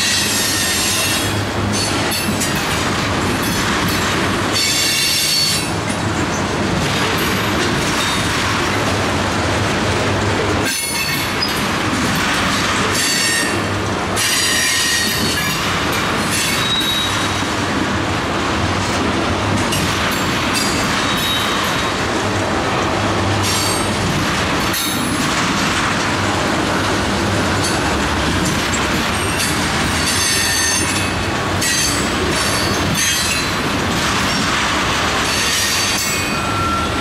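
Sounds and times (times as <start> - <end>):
train wheels rolling on rails: 0.0 - 37.0
high-pitched wheel squeal: 35.3 - 37.0.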